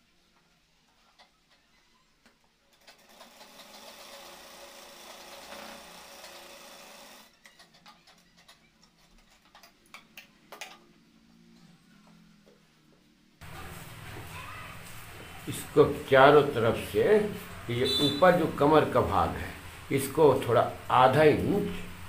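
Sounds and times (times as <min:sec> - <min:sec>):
sewing machine stitching fabric: 0:02.6 - 0:09.6.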